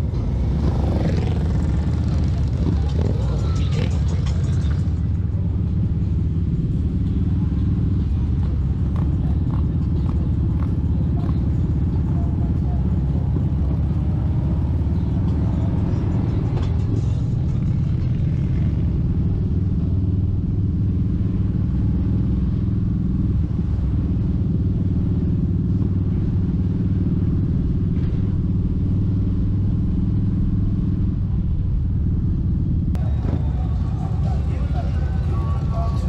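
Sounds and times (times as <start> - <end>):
motorcycle engine cruising: 0.0 - 36.0.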